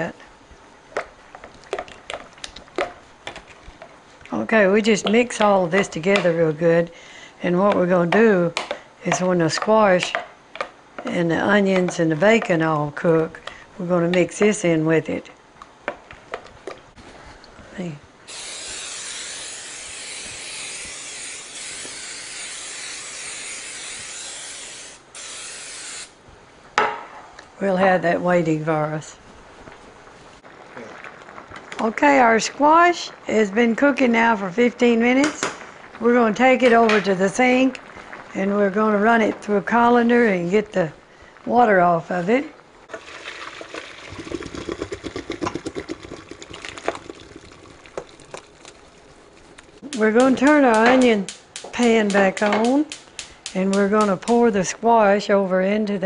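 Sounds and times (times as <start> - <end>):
aerosol spray hissing: 18.3 - 26.2
water pouring into colander: 42.9 - 48.8.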